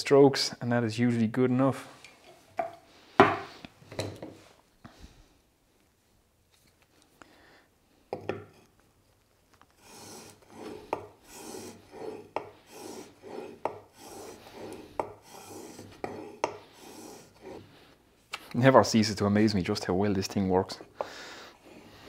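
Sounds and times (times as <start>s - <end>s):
blade rubbing on abrasive sheet: 9.8s - 18.0s.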